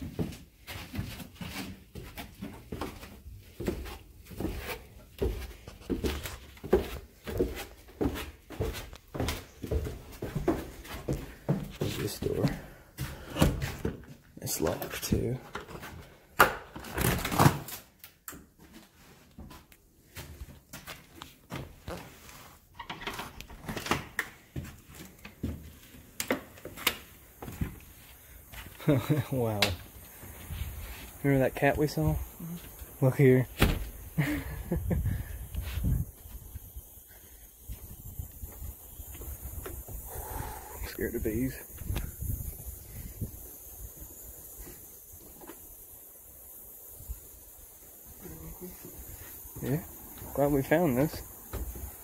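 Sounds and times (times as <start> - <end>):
footsteps on wooden stairs: 0.0 - 14.3, 18.4 - 22.1, 23.1 - 31.2, 37.6 - 40.0, 51.4 - 52.0.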